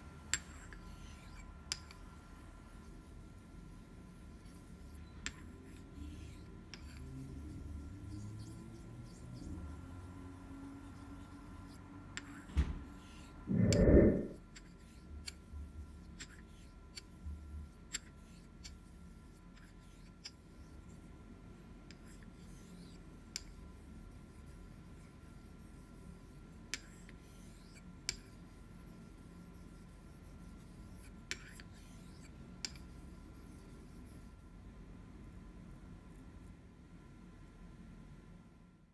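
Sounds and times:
thump: 12.5s - 12.9s.

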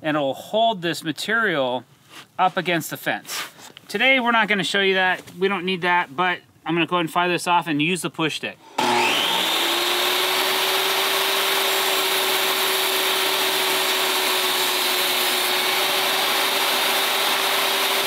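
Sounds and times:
table saw ripping a board: 8.7s - 18.0s.

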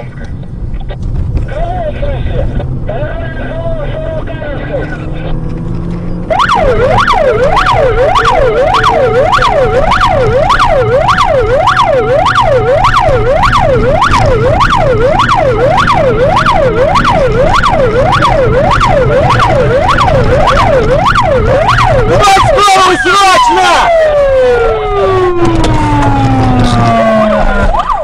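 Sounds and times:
low vehicle rumble: 0.0s - 22.6s, 23.7s - 28.0s
siren yelping: 6.1s - 28.0s.

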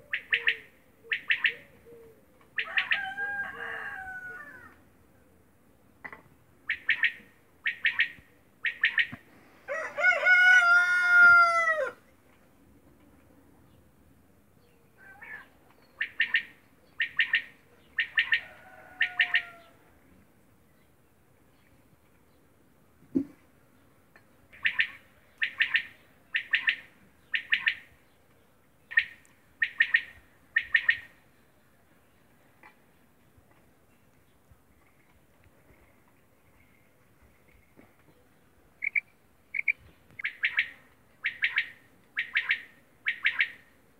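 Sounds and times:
quail calling: 0.0s - 4.8s, 6.6s - 12.0s, 15.0s - 19.8s, 24.6s - 27.9s, 28.9s - 31.1s, 38.8s - 43.7s
rooster crowing: 2.7s - 4.8s, 9.7s - 12.0s, 18.4s - 19.8s.

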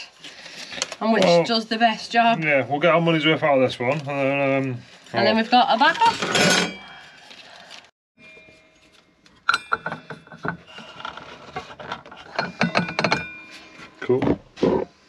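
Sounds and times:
steel saw blade ringing: 8.2s - 10.6s, 12.7s - 14.1s.

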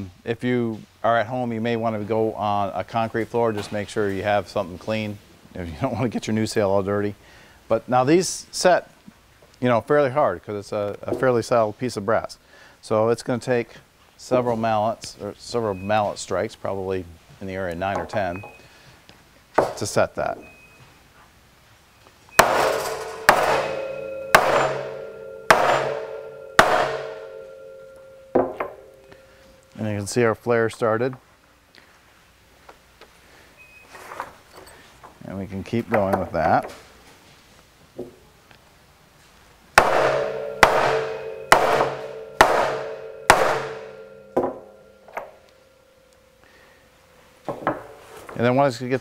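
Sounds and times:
mallet striking metal setter: 22.4s - 29.2s, 39.8s - 45.4s
ringing metal tone: 22.4s - 30.0s, 39.8s - 47.5s.

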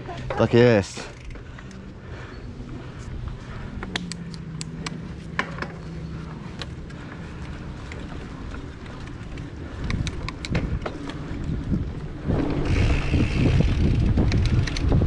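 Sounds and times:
bike rattling clicks over bumps: 0.0s - 15.0s
bike tyres rumbling on dirt: 5.2s - 15.0s
wind buffeting microphone: 7.0s - 15.0s.

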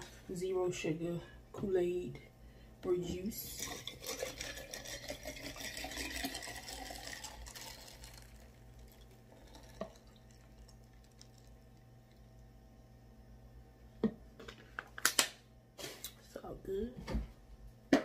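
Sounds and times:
drink poured into glass with ice: 3.5s - 12.3s.

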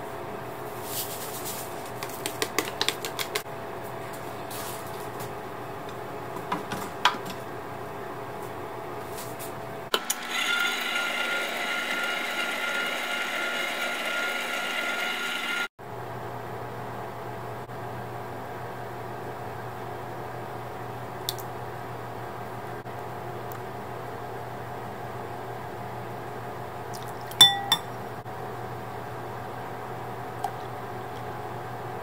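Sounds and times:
stand mixer motor whine: 9.9s - 15.7s.

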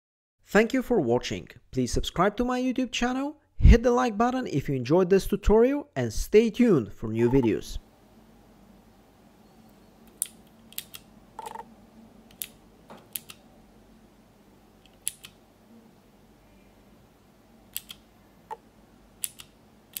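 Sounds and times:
mechanical key switches clicking: 17.7s - 18.0s, 19.2s - 20.0s.

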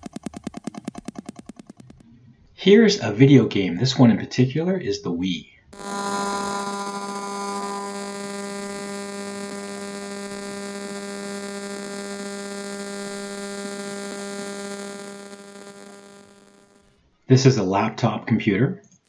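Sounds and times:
steady buzzing hum: 5.7s - 17.0s.

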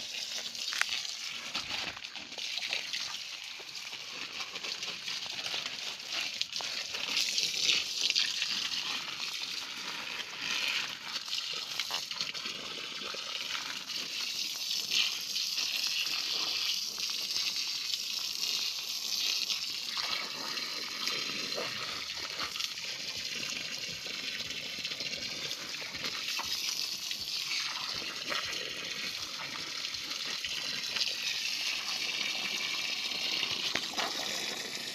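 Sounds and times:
hose water gushing onto soil: 0.0s - 34.9s
water splashing into puddle: 33.4s - 34.9s.

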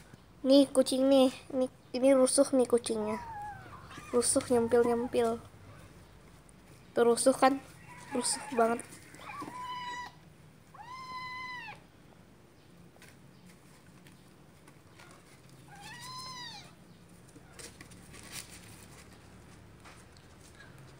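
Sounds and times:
kittens meowing: 3.1s - 6.0s, 7.8s - 11.8s, 15.7s - 16.8s.

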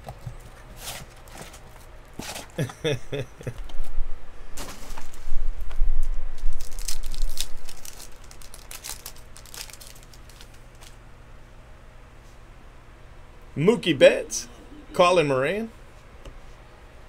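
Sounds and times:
plastic wrapper tearing and crinkling: 6.4s - 11.0s.

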